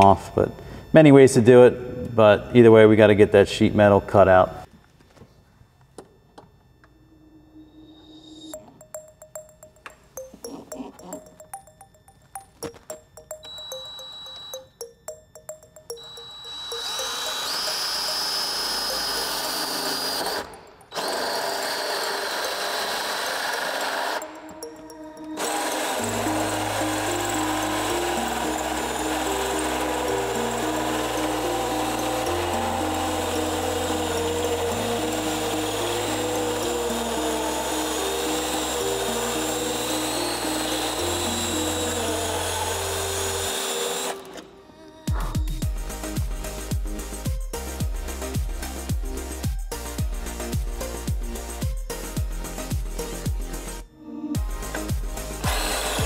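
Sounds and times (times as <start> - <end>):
background music: 7.3 - 56.0
drill with hole saw cutting metal: 16.0 - 24.4, 25.2 - 44.4, 55.3 - 56.0
kick drum beat: 45.1 - 53.5, 54.4 - 55.7.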